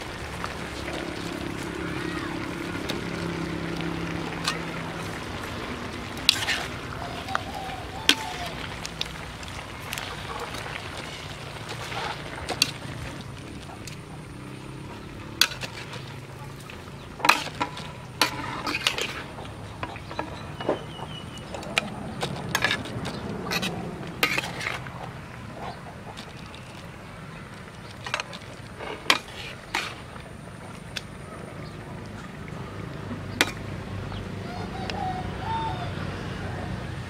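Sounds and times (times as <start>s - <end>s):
metal spatula scraping wok: 6.2s - 7.4s, 17.2s - 19.4s, 22.2s - 24.9s, 28.8s - 30.1s.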